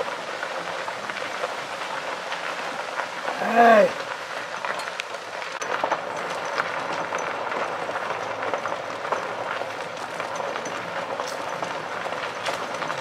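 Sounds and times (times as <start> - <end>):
tyres rumbling on road: 0.0 - 13.0
small rattles and clicks: 4.0 - 13.0.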